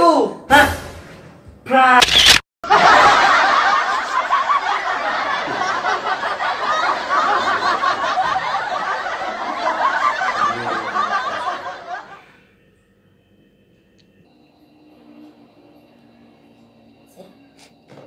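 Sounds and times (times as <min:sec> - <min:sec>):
group of people laughing: 0:02.6 - 0:12.4.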